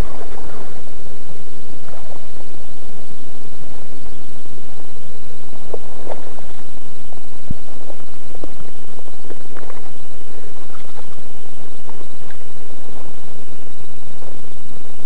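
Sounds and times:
steady background noise: 0:00.0 - 0:15.0
knocks and rustles on riverbank: 0:05.6 - 0:13.4.

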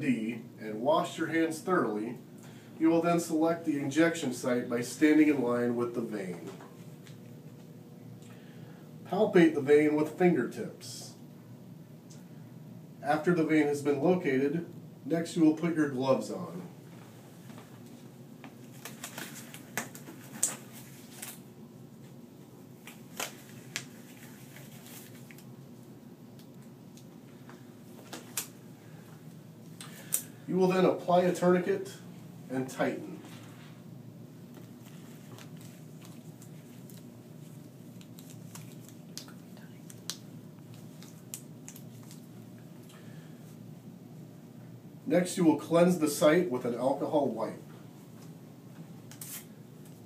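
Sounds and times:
low room hum: 0:00.0 - 0:50.0
rubber gloves rustling: 0:16.9 - 0:31.6, 0:32.8 - 0:43.7, 0:49.0 - 0:50.0.

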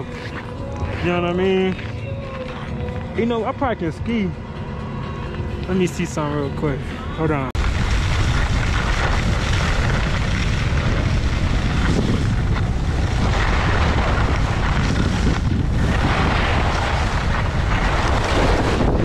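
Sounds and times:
skis sliding over snow: 0:07.6 - 0:19.0
wind buffeting microphone: 0:07.6 - 0:19.0.

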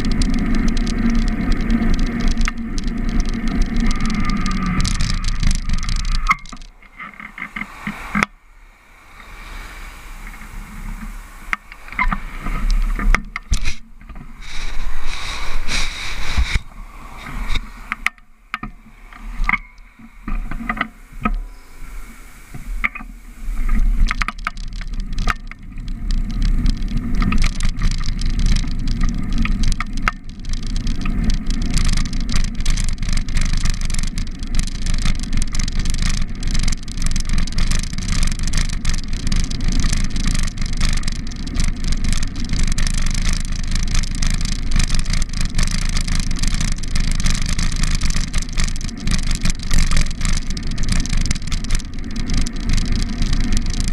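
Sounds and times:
scattered clicks: 0:00.0 - 0:08.4, 0:10.2 - 0:21.5, 0:22.5 - 0:53.9
wind rumble on camera: 0:00.0 - 0:53.9
cars driving past: 0:04.1 - 0:12.6.

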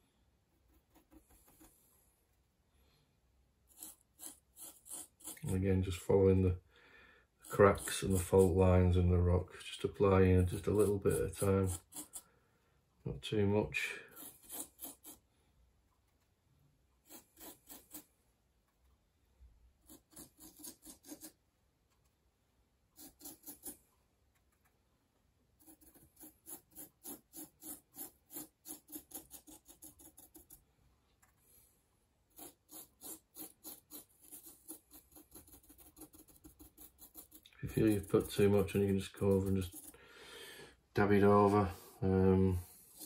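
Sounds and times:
faint paintbrush scrubbing: 0:00.5 - 0:02.5, 0:03.6 - 0:06.3, 0:07.4 - 0:09.0, 0:10.0 - 0:12.3, 0:13.7 - 0:15.3, 0:17.0 - 0:18.9, 0:23.0 - 0:24.7, 0:25.6 - 0:31.7, 0:32.3 - 0:40.0, 0:41.0 - 0:43.0.

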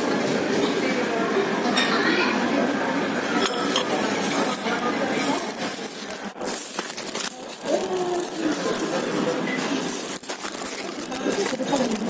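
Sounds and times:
faint voices: 0:00.0 - 0:12.0
crockery and cutlery clatter: 0:01.6 - 0:02.1, 0:03.1 - 0:06.0.

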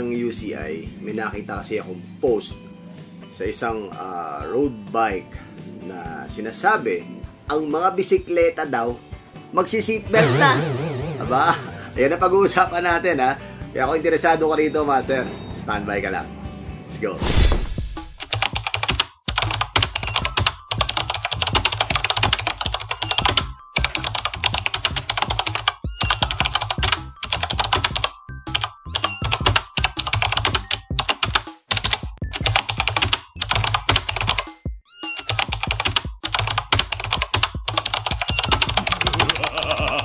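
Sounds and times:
background music with bass: 0:00.0 - 0:18.8.

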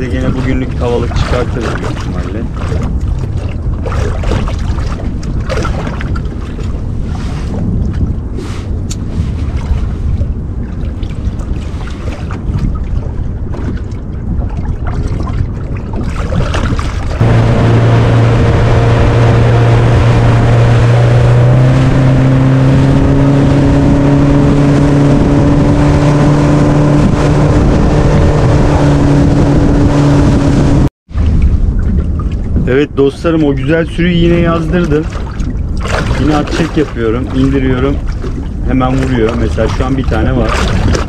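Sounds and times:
wind and water noise: 0:00.0 - 0:41.0
boat motor humming: 0:16.5 - 0:41.0
steady tone: 0:17.2 - 0:31.8.

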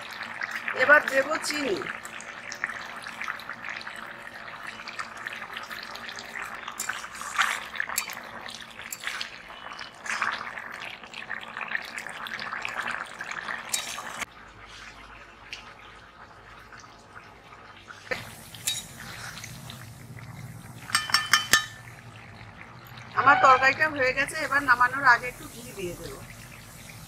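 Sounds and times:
curry bubbling in a wok: 0:00.0 - 0:27.0
metal spatula knocking pan: 0:20.9 - 0:21.9.

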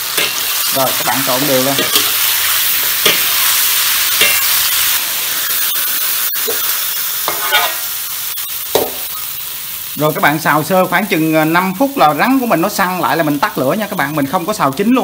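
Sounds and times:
food sizzling in a wok: 0:00.0 - 0:15.0
metal spatula scraping pan: 0:00.1 - 0:07.9.

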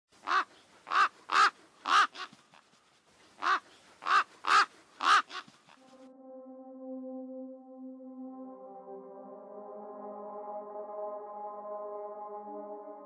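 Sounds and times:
crow cawing: 0:00.2 - 0:02.3, 0:03.4 - 0:05.8
soft ambient music: 0:05.8 - 0:13.0.

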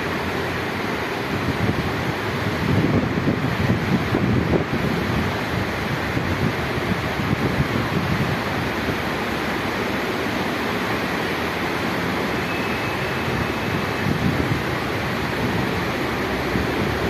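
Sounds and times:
rain rushing: 0:00.0 - 0:17.0
wind buffeting microphone: 0:01.2 - 0:09.2, 0:13.3 - 0:17.0.

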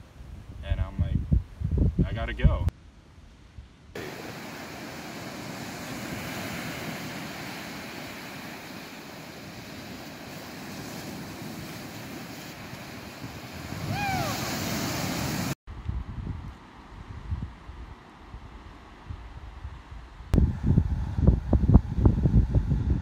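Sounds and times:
wind on microphone: 0:00.0 - 0:02.7, 0:03.4 - 0:23.0
ocean surf breaking on beach: 0:04.0 - 0:15.6
short cry falling in pitch: 0:13.9 - 0:14.4.

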